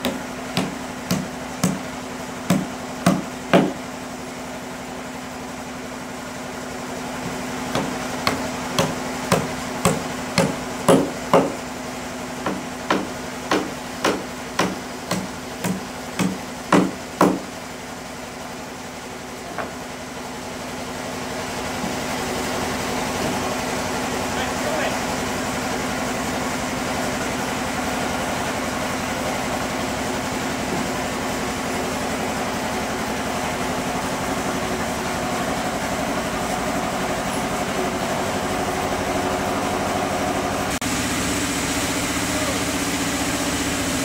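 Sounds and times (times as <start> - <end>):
hammer striking wood: 0.0 - 1.9, 2.5 - 3.8, 7.2 - 11.7, 12.4 - 17.5, 19.5 - 19.8
low machine hum: 0.0 - 44.0.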